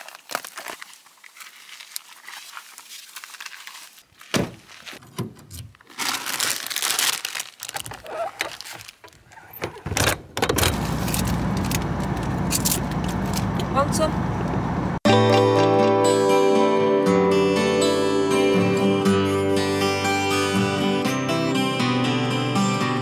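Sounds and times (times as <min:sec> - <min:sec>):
crisp packet crinkling: 0:00.0 - 0:05.0, 0:05.6 - 0:09.4
plastic bag rustling: 0:00.0 - 0:09.6.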